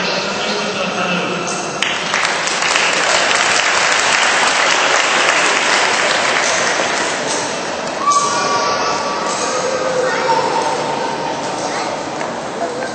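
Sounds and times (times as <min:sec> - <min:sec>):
audience applauding: 0:01.8 - 0:08.0.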